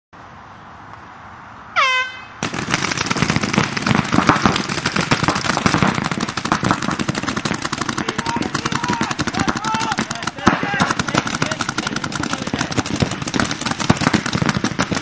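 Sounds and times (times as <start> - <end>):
air horn blast: 1.8 - 2.4
paintball markers popping: 3.8 - 15.0.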